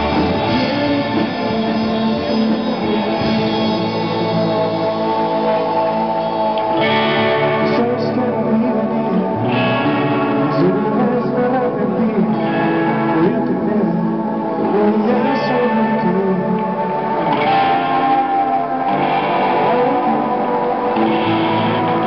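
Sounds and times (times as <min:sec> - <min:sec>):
electric guitars ringing chords: 0:00.0 - 0:22.0.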